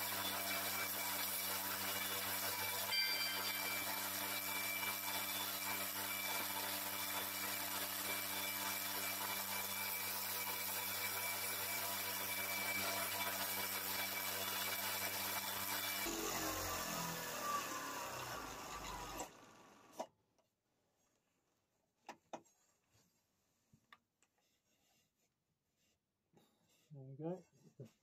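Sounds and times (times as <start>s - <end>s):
sandpaper rubbing spinning wood: 0.0s - 16.1s
electric lathe motor humming: 12.8s - 19.7s.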